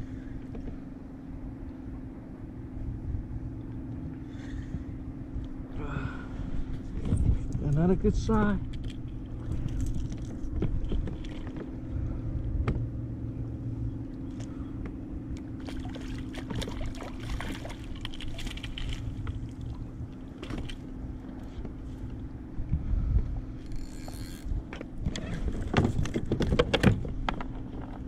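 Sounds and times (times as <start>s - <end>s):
steady low hum: 0.0s - 28.0s
light clicks and knocks from hull: 0.4s - 0.9s, 6.6s - 13.1s, 14.0s - 22.3s, 23.1s - 28.0s
water sloshing: 8.6s - 12.3s, 15.4s - 22.3s.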